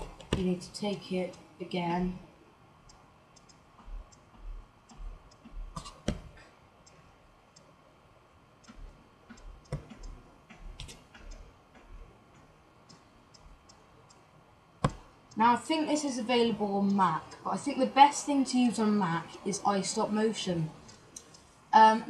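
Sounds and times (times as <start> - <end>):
computer mouse clicks: 2.9 - 7.0, 8.6 - 14.2, 20.8 - 21.5.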